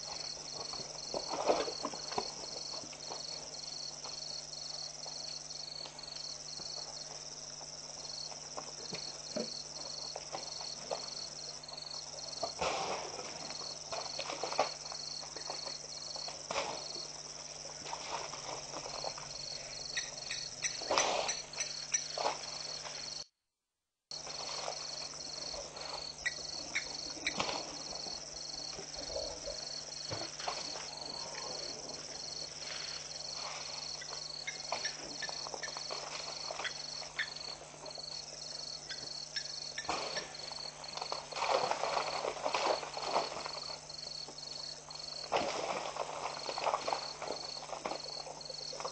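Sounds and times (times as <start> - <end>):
insect chirping: 0.0 - 23.3, 24.1 - 48.9
elephants splashing in mud: 12.4 - 15.7, 17.6 - 19.5, 30.2 - 37.2, 39.8 - 43.9, 45.2 - 48.9.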